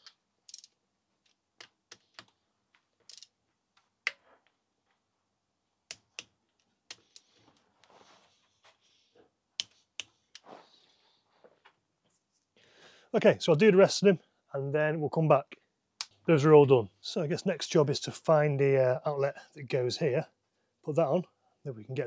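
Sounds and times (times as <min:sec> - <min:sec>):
soft handling noise: 0:06.5 - 0:12.7.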